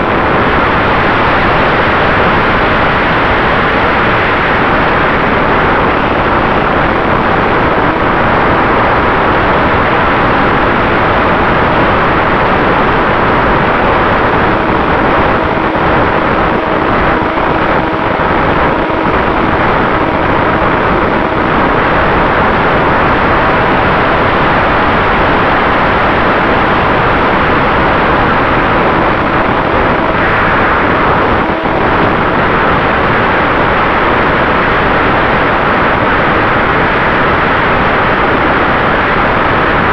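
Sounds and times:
wind rushing: 11.6s - 34.6s.

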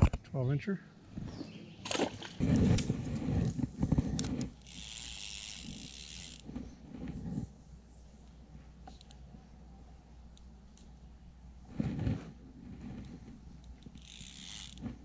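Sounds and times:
fishing rod handling clicks and rustles: 1.8s - 7.6s, 8.2s - 9.3s, 12.2s - 15.0s.

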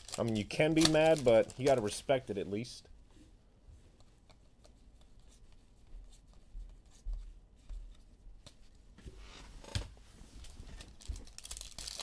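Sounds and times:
trading cards rustling: 0.0s - 2.3s, 10.8s - 12.0s.

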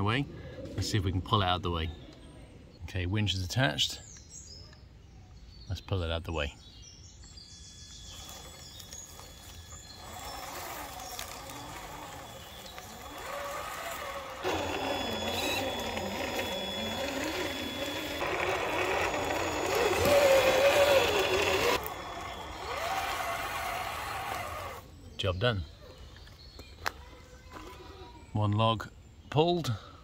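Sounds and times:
winch motor whining: 7.8s - 24.9s.

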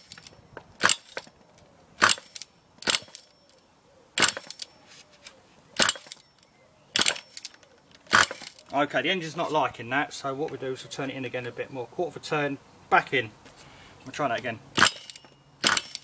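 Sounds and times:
model engine popping: 2.0s - 3.3s, 4.2s - 4.7s, 7.0s - 8.7s, 14.8s - 16.0s.

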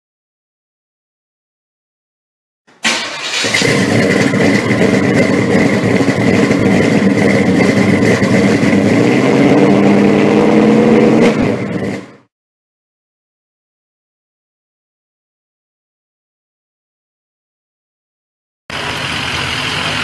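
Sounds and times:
car engine running loudly: 2.8s - 12.3s, 18.7s - 20.0s.

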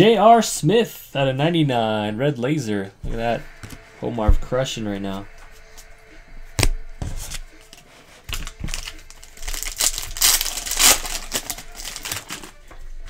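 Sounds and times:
foil wrapper crinkling: 7.3s - 12.7s.

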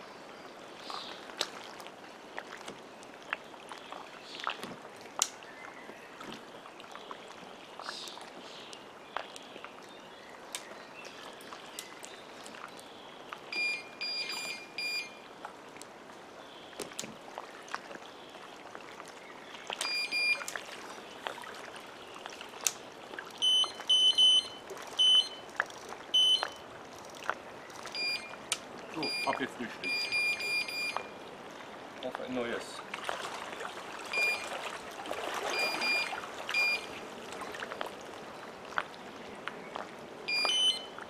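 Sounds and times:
lapping water: 0.7s - 41.0s
low-pitched bite alarm beeping: 13.5s - 15.2s, 19.8s - 20.5s, 23.4s - 25.4s, 26.2s - 26.6s, 28.0s - 28.4s, 29.0s - 31.1s, 34.1s - 34.5s, 35.5s - 36.9s, 40.3s - 40.9s
high-pitched bite alarm beeping: 13.6s - 15.2s, 19.8s - 20.5s, 23.4s - 25.4s, 26.2s - 26.6s, 28.0s - 28.4s, 29.0s - 31.1s, 34.2s - 34.4s, 35.6s - 36.9s, 40.3s - 40.9s
fishing tackle clicks and knocks: 24.9s - 28.7s.

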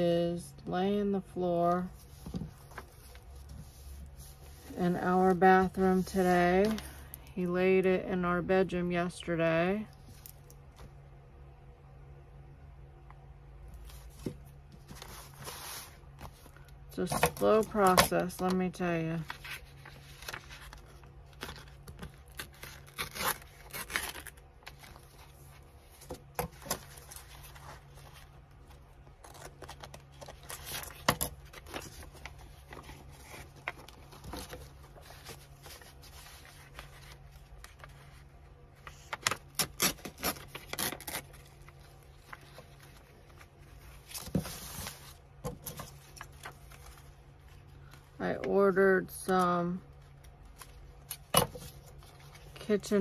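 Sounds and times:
paper rustling and scraping: 1.8s - 6.9s, 13.8s - 16.7s, 17.4s - 48.0s.

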